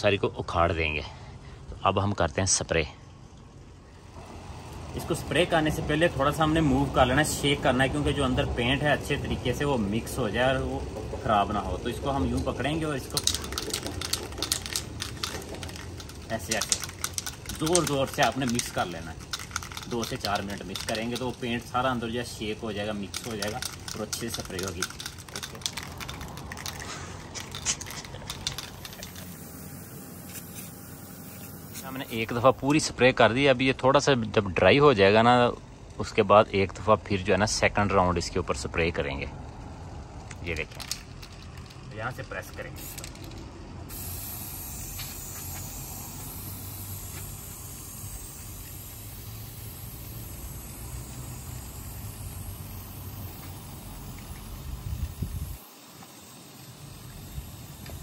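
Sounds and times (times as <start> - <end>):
spray can ball rattling: 4.6 - 32.9, 40.1 - 58.0.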